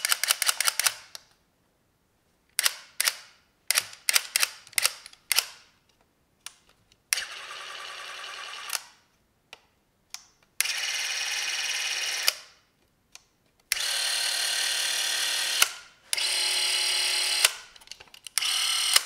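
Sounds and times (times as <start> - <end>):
film camera motor running: 10.6 - 12.3, 13.8 - 15.6, 18.4 - 19.0.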